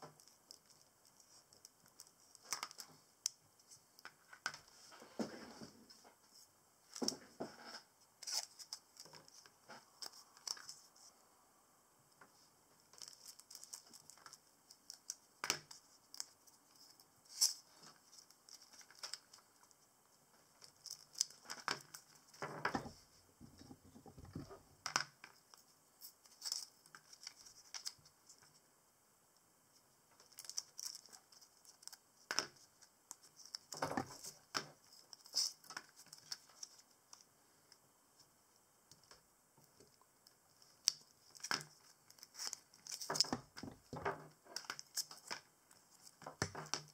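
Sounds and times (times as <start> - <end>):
bark crinkling on paper: 41.2 - 43.3.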